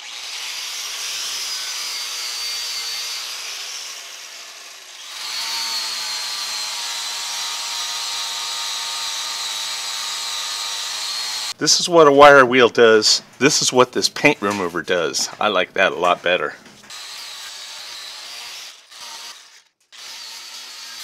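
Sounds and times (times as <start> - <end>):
angle grinder whining: 0.0 - 11.6, 16.9 - 21.0.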